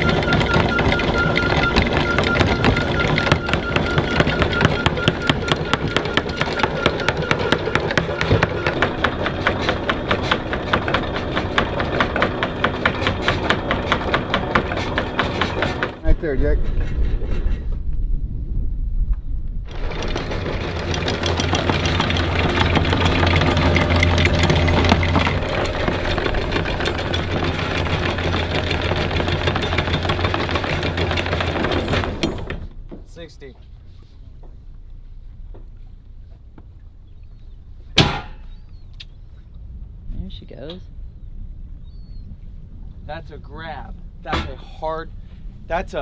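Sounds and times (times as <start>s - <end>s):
low motor hum: 0.0s - 46.0s.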